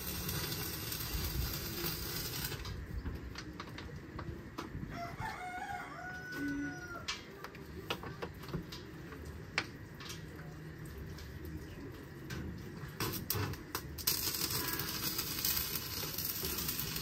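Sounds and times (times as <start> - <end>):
rooster crowing: 4.9 - 7.2.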